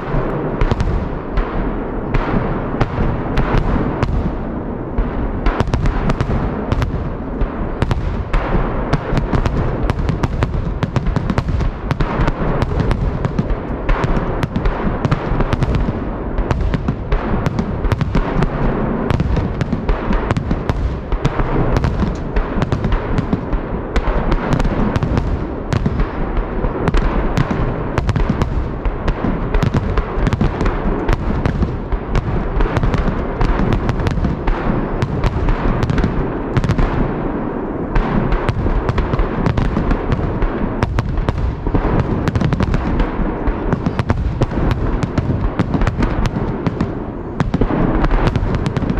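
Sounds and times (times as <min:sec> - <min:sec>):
fireworks bursts and bangs: 0:00.0 - 0:48.9.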